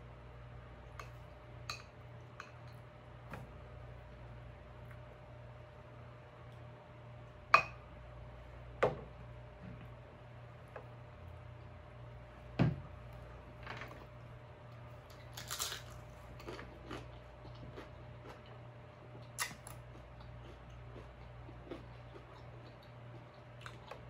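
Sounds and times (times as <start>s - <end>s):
chewing and mouth sounds: 15.1s - 24.0s.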